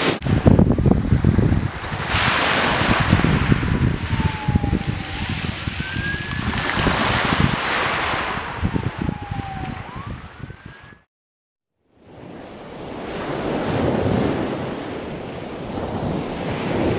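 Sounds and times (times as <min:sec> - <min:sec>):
sea waves washing on beach: 0:00.0 - 0:10.1, 0:12.0 - 0:16.9
wind on microphone: 0:00.0 - 0:11.1, 0:12.0 - 0:16.9
faint wail: 0:03.8 - 0:07.2, 0:08.2 - 0:10.2.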